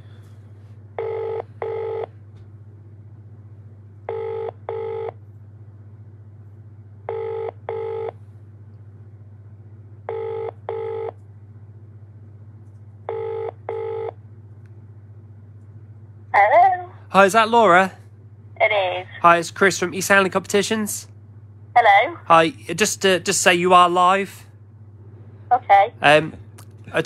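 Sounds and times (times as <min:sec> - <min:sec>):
double-ring telephone ringback tone: 0:01.0 - 0:02.1, 0:04.1 - 0:05.2, 0:07.1 - 0:08.2, 0:10.1 - 0:11.1, 0:13.1 - 0:14.2.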